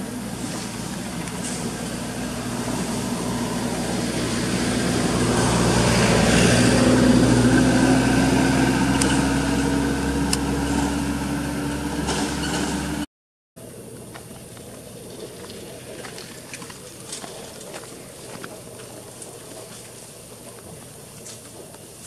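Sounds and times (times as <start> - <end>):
vehicle engine running: 0.0 - 13.0, 13.7 - 22.0.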